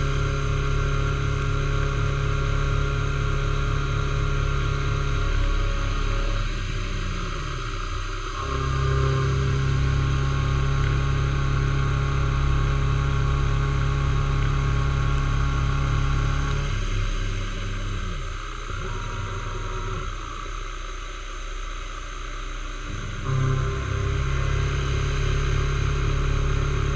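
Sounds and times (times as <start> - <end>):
milling machine cutting metal: 4.6 - 11.8, 16.0 - 20.5, 22.9 - 26.9.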